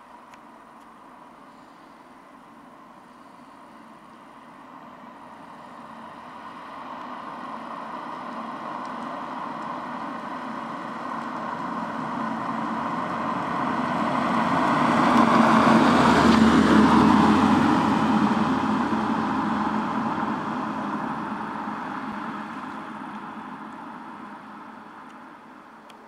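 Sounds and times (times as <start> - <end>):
car driving past: 5.4 - 24.4.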